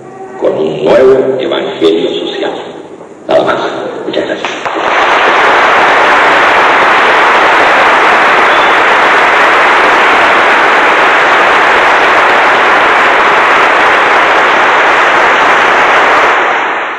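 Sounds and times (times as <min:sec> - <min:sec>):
audience applauding: 0:04.5 - 0:16.9.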